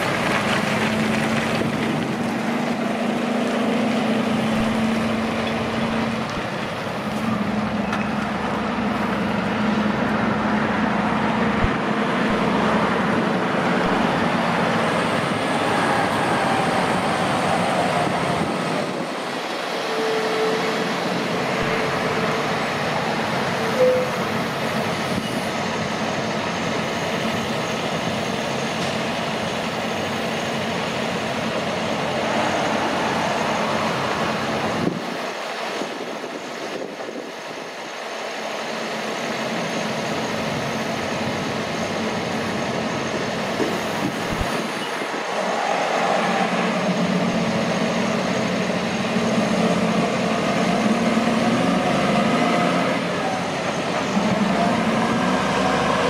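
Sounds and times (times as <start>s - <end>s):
diesel trucks driving past: 0.0s - 56.0s
truck engine wavering note: 7.0s - 25.4s.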